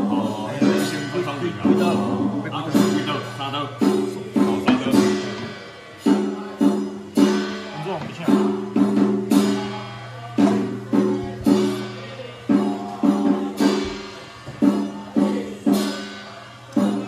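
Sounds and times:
percussion strikes with pitched ring: 0:00.0 - 0:17.0
steady low hum: 0:00.0 - 0:17.0.

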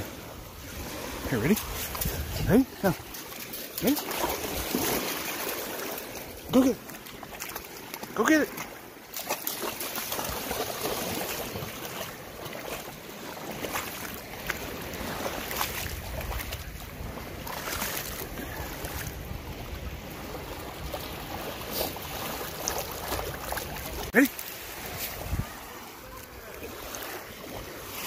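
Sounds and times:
wind on microphone: 0:00.0 - 0:02.9, 0:25.0 - 0:25.7
waves lapping at shore: 0:00.0 - 0:28.0
dog splashing through water: 0:00.1 - 0:19.2, 0:20.1 - 0:25.8.

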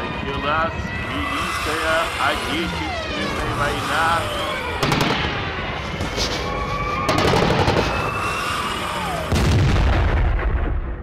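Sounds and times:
siren wailing: 0:00.0 - 0:10.3
rapid gunfire: 0:04.8 - 0:05.5, 0:07.1 - 0:08.2
loud explosion: 0:07.0 - 0:08.3, 0:09.2 - 0:11.0.

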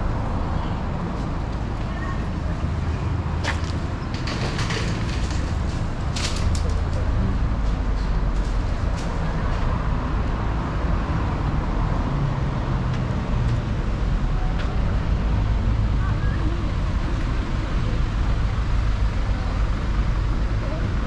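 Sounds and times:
road traffic rumble: 0:00.0 - 0:21.0.

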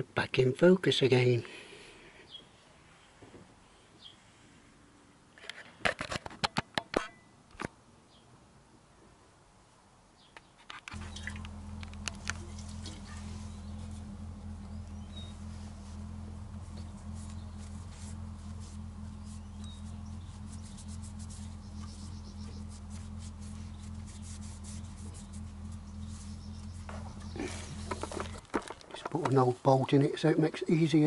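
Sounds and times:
steady low hum: 0:10.9 - 0:29.3.

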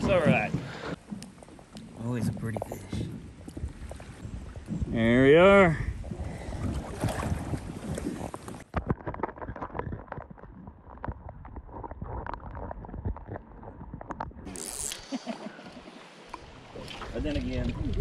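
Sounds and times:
small underwater clicks and knocks: 0:00.0 - 0:04.9, 0:08.0 - 0:14.5, 0:15.7 - 0:18.0.

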